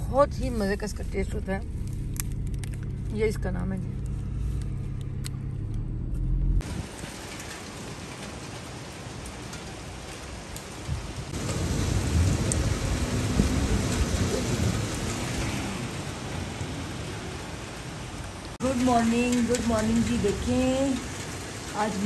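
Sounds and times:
low hum: 0:00.0 - 0:06.6
low rumble: 0:00.0 - 0:07.1
heavy rain pouring: 0:06.6 - 0:22.0.

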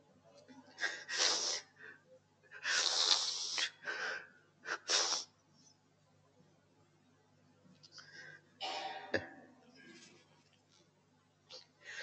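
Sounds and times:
man hissing into microphone: 0:04.8 - 0:05.3.

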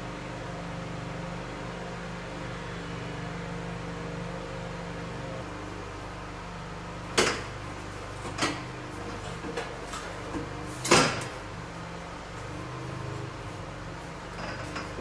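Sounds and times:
steady low hum: 0:00.0 - 0:15.0
knocks and clanks of tools: 0:07.1 - 0:07.6, 0:08.2 - 0:11.4.

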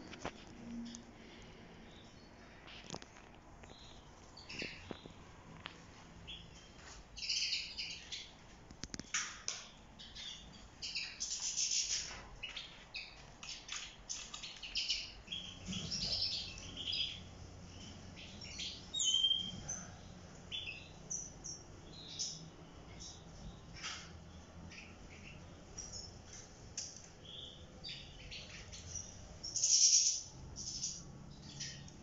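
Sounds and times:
finches chirping and twittering: 0:06.2 - 0:09.1, 0:10.0 - 0:32.0.

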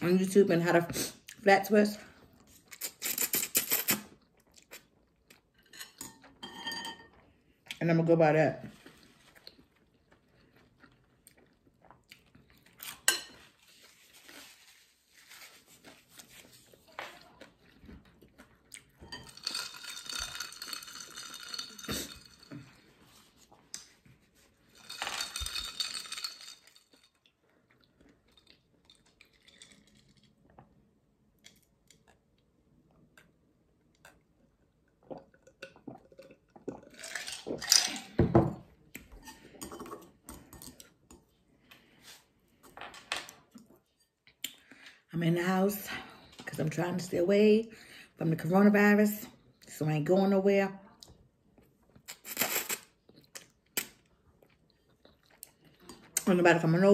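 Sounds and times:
utensils clinking on dishes: 0:05.6 - 0:07.2, 0:19.0 - 0:22.8, 0:24.7 - 0:27.2
chewing: 0:08.8 - 0:13.1, 0:15.8 - 0:19.0, 0:26.8 - 0:30.7, 0:51.6 - 0:56.2.

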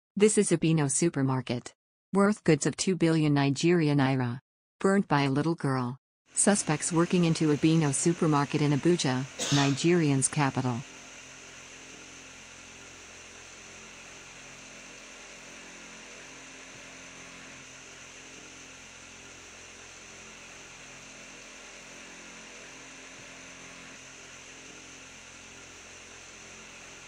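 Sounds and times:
constant hiss: 0:06.4 - 0:27.0
electrical mains hum: 0:06.4 - 0:27.0.

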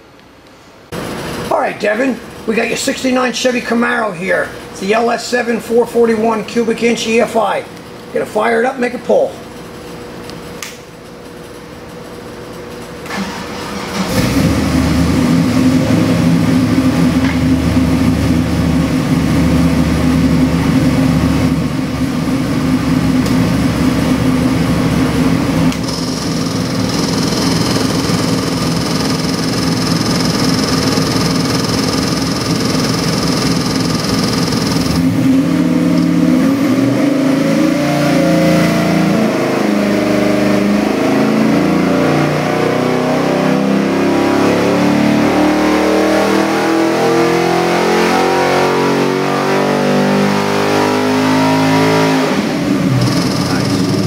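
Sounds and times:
engine revving: 0:13.0 - 0:54.0.

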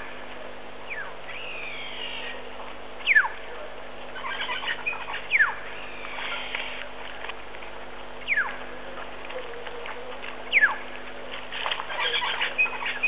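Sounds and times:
bird chirps: 0:00.9 - 0:02.4, 0:03.0 - 0:03.4, 0:04.2 - 0:06.8, 0:08.2 - 0:08.6, 0:10.5 - 0:10.8, 0:11.6 - 0:13.0.

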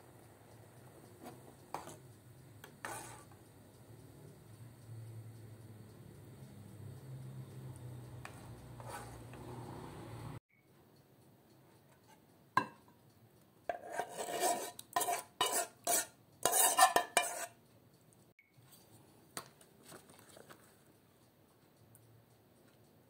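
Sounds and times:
spoon scraping a pot: 0:01.2 - 0:02.0, 0:02.6 - 0:03.4, 0:08.2 - 0:09.6, 0:13.7 - 0:17.6.

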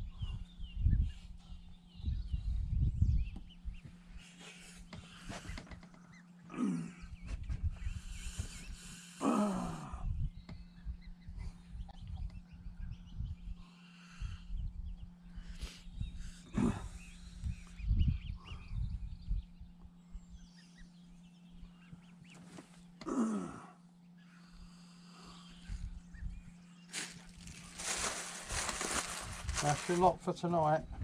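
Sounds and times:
steady low hum: 0:00.0 - 0:31.0
geese calling: 0:04.2 - 0:06.2.

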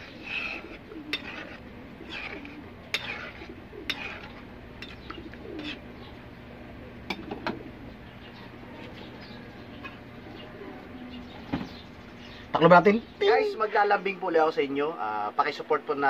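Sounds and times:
metal ladle scraping a wok: 0:00.0 - 0:05.8
low steady hum: 0:00.0 - 0:16.0.

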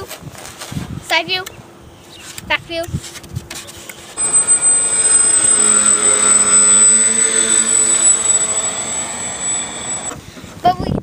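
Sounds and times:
model plane motor whine: 0:04.2 - 0:10.2.

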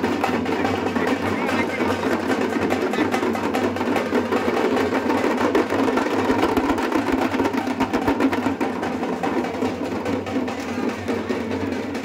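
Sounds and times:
barrel drums beating fast: 0:00.0 - 0:12.0.

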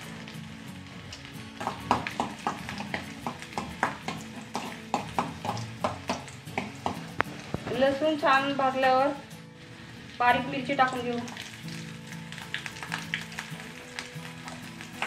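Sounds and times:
garlic frying in oil: 0:00.0 - 0:15.0.

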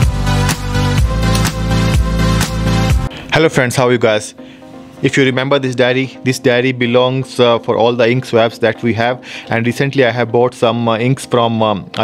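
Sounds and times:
electronic dance music: 0:00.0 - 0:04.4.

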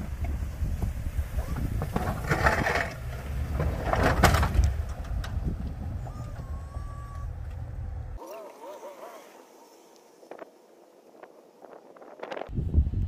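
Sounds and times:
plow blade scraping snow: 0:00.0 - 0:10.3
low engine rumble: 0:00.0 - 0:13.0.

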